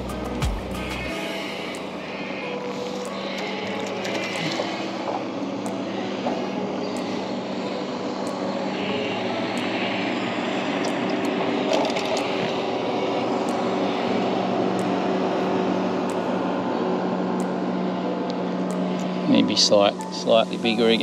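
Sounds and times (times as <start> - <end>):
steady engine drone: 0.0 - 21.0.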